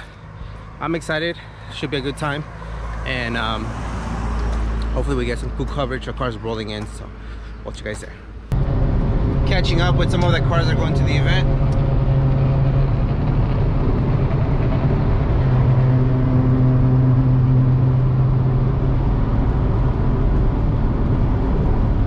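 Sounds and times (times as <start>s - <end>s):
car engine and tyre noise: 0.0s - 22.0s
low hum: 8.2s - 22.0s.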